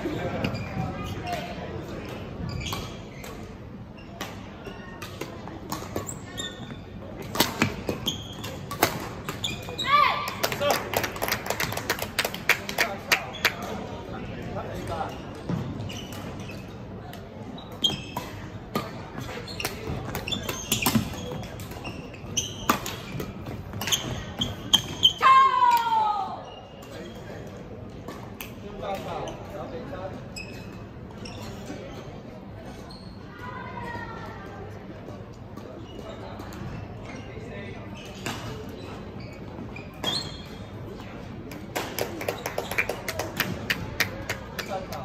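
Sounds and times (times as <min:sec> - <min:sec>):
shoe squeaks on court floor: 0:00.2 - 0:01.5, 0:02.4 - 0:10.0, 0:14.9 - 0:16.9, 0:17.5 - 0:25.2, 0:26.4 - 0:27.5, 0:29.0 - 0:33.4, 0:35.6 - 0:41.1.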